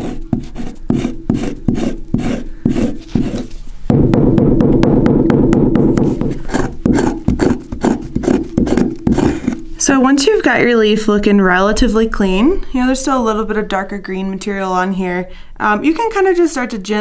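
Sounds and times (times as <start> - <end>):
stone scraper scraping leaf: 0.0 - 3.5, 6.4 - 9.6
stone pounding on wooden block: 3.9 - 9.6.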